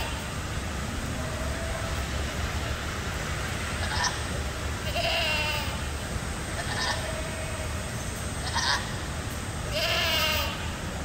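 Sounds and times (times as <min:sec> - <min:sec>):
goats bleating: 0:04.8 - 0:05.9, 0:06.6 - 0:07.7, 0:09.7 - 0:10.7.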